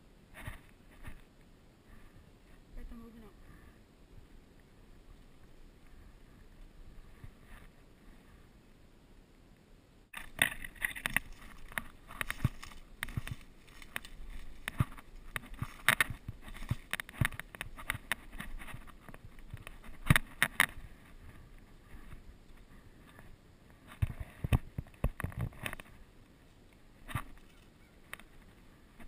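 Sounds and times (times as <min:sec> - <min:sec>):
twigs snapping: 0:10.2 - 0:20.8
brush scraping: 0:10.2 - 0:23.2
footsteps crunching through dry leaves: 0:10.6 - 0:17.6.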